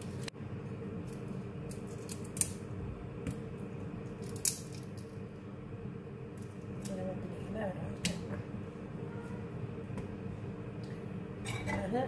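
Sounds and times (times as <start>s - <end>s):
steady low hum: 0.0s - 12.0s
prawn shells snapping: 1.1s - 2.6s, 4.2s - 5.1s.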